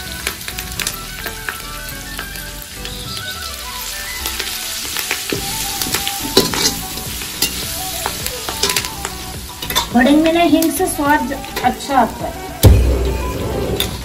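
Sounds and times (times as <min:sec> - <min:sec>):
spices sizzling in hot oil: 0:00.0 - 0:14.0
spatula clacking on iron: 0:09.6 - 0:10.0.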